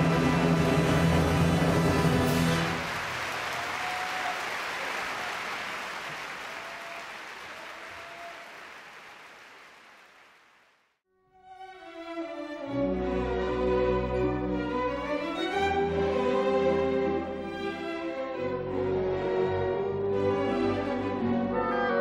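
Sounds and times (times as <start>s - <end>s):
audience applauding: 1.7s - 10.9s
string music: 11.1s - 22.0s.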